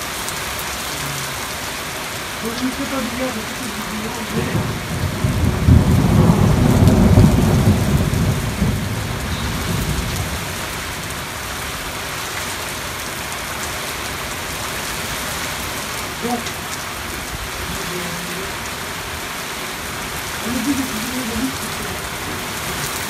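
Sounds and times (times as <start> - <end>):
steady rain: 0.0 - 23.0
thunder rolling: 2.8 - 11.3.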